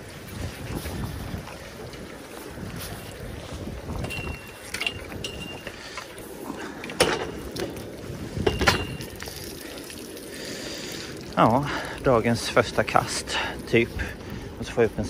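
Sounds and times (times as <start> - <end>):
metal bicycle clanking and rattling: 3.9 - 9.4.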